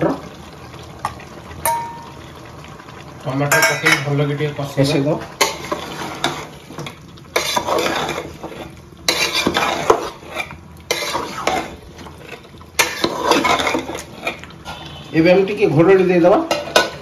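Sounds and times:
food frying: 0:00.0 - 0:17.0
spatula stirring food in pot: 0:04.8 - 0:15.7, 0:16.4 - 0:17.0.

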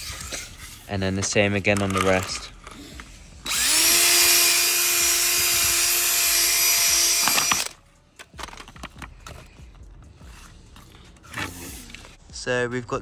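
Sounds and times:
cordless drill drilling plastic: 0:03.4 - 0:07.8.

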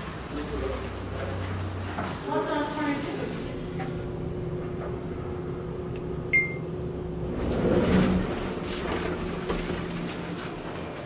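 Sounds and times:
elevator hum: 0:00.0 - 0:11.0
elevator doors sliding open: 0:03.1 - 0:11.0
elevator chime: 0:06.2 - 0:07.2.

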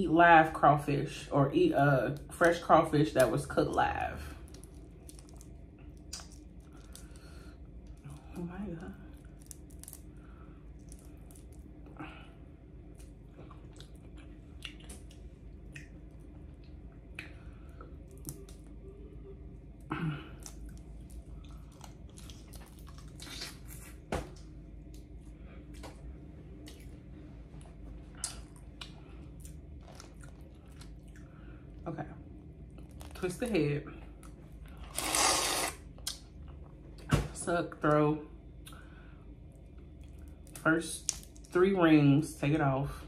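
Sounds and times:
wet chewing: 0:04.4 - 0:08.3, 0:09.1 - 0:11.9, 0:12.8 - 0:17.4, 0:20.4 - 0:26.9, 0:28.2 - 0:31.5.

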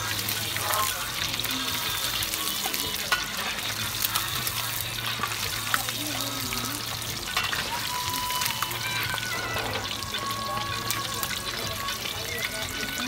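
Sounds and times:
fish deep-frying in oil: 0:00.0 - 0:13.0.

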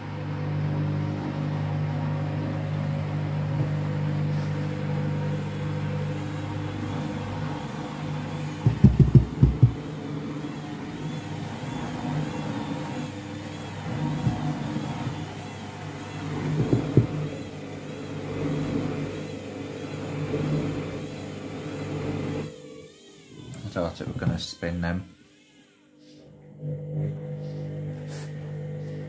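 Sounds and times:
washing machine motor hum: 0:00.0 - 0:29.0
heavy thumps of unbalanced drum: 0:08.6 - 0:09.8, 0:16.5 - 0:17.2.

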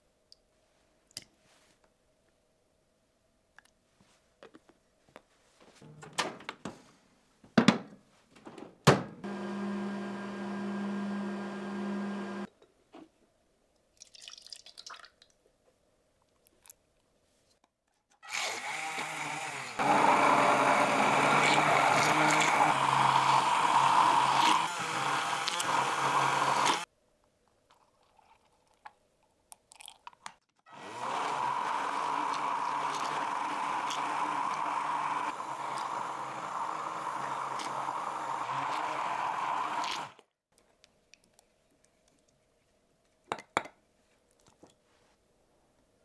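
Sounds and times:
kitchen appliance motor humming: 0:09.2 - 0:12.5, 0:18.3 - 0:26.9, 0:30.7 - 0:40.2.

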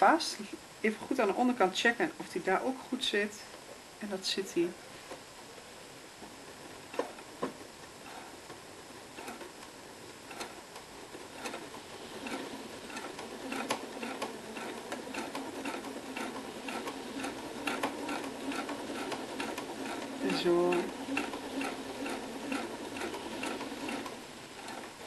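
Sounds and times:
sewing machine stitching: 0:06.6 - 0:25.0.

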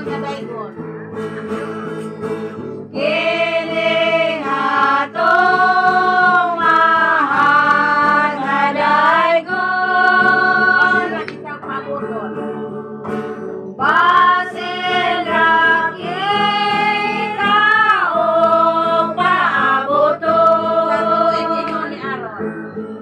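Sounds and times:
strummed acoustic guitars: 0:00.0 - 0:23.0
person singing: 0:02.9 - 0:11.5, 0:13.8 - 0:22.2.

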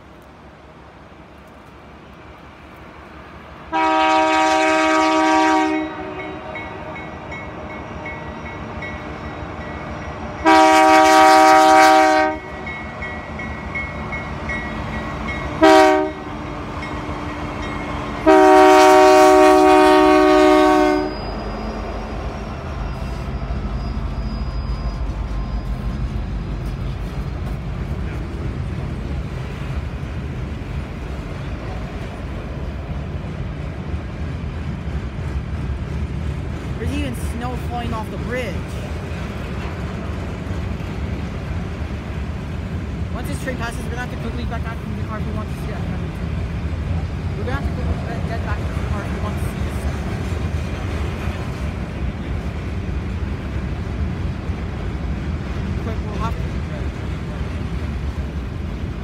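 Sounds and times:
freight train rolling past: 0:00.0 - 0:59.0
locomotive horn blasts: 0:03.7 - 0:07.0, 0:09.0 - 0:12.6, 0:15.6 - 0:16.4, 0:18.2 - 0:22.0.

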